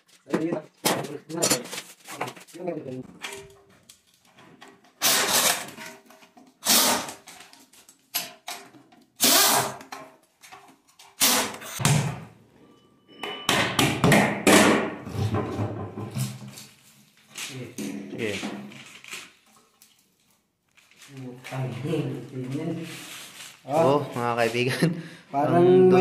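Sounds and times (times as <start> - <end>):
metal clanks and thunks: 13.2 - 16.6.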